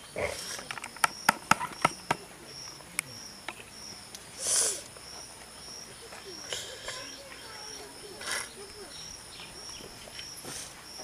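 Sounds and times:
insects chirping: 0.0s - 11.0s
loud wet sniff: 4.4s - 4.9s, 10.4s - 10.8s.

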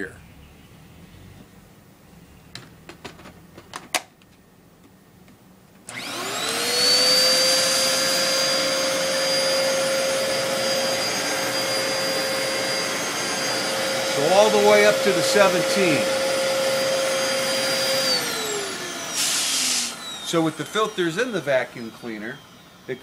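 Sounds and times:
sharp clicks of handling vacuum: 5.3s - 6.6s
vacuum cleaner motor whine: 5.8s - 23.0s.

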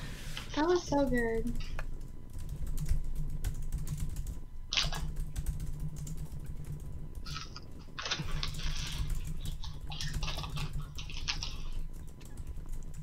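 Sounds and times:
steady low hum: 0.0s - 13.0s
computer keyboard typing: 1.0s - 13.0s.

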